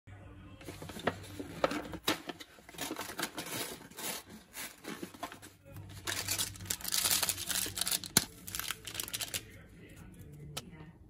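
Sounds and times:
plastic sachets crinkling: 0:00.6 - 0:09.6
foil lid being peeled: 0:00.8 - 0:09.4.

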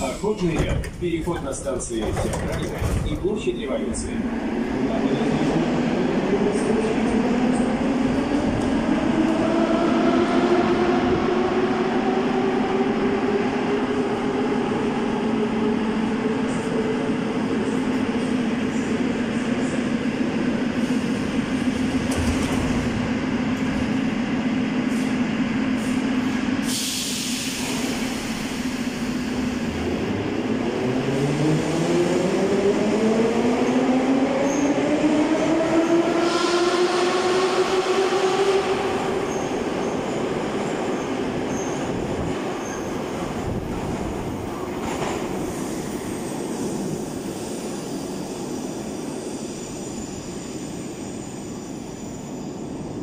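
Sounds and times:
train hum: 0:00.0 - 0:53.0
air hiss: 0:26.6 - 0:29.4.

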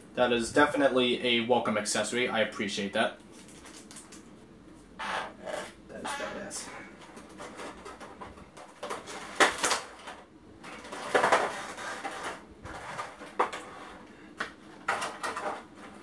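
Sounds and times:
plastic packaging crinkling: 0:03.3 - 0:04.3, 0:06.9 - 0:13.9.

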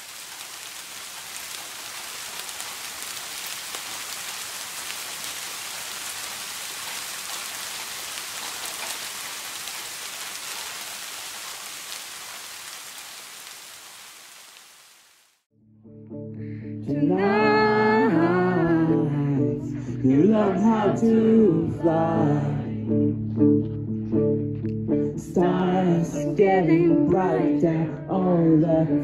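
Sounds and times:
rain pattering: 0:00.0 - 0:15.5.

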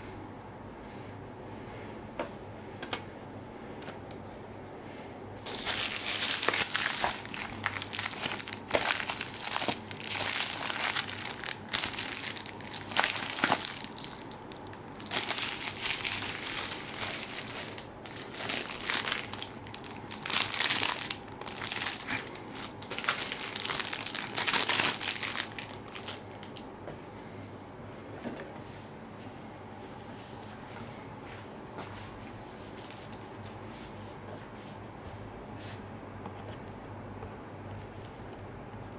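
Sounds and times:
plastic wrapping crinkling: 0:05.4 - 0:26.6, 0:32.7 - 0:33.3.

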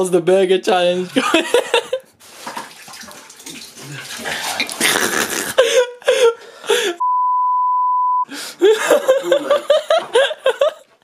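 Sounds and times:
person gasping: 0:05.5 - 0:07.0, 0:08.3 - 0:08.8
censor bleep: 0:07.0 - 0:08.3.

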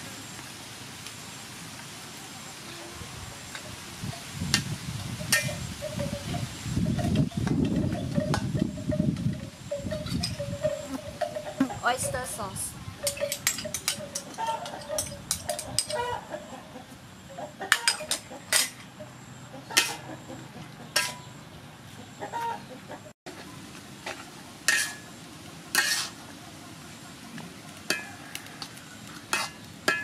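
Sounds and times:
metal spatula scraping a wok: 0:05.3 - 0:05.7, 0:17.7 - 0:18.9, 0:19.7 - 0:20.2, 0:20.9 - 0:21.3, 0:24.0 - 0:26.3, 0:27.8 - 0:30.0
chicken clucking: 0:19.5 - 0:21.3, 0:21.9 - 0:23.1.

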